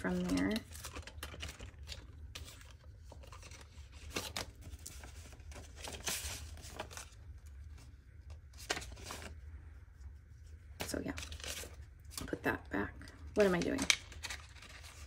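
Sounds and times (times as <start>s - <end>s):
banknotes and plastic rustling: 0.0s - 9.4s, 10.4s - 15.0s.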